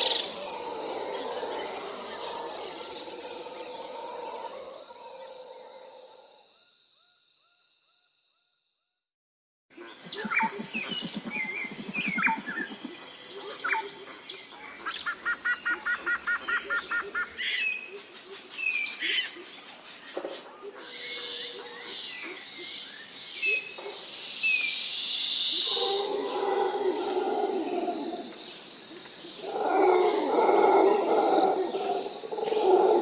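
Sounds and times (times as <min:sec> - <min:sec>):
high insect drone: 0:00.0 - 0:08.8, 0:09.8 - 0:33.0
birds chirping and calling: 0:09.9 - 0:19.5.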